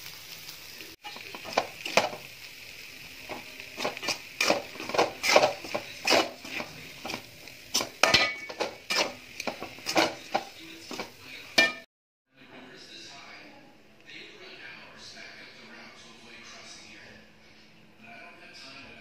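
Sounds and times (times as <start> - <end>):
spatula scraping metal pan: 3.3 - 11.9.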